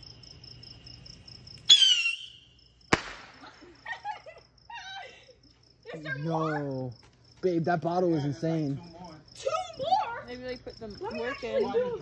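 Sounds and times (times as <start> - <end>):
crickets chirping: 0.0 - 12.0
sharp crack: 2.9 - 3.8.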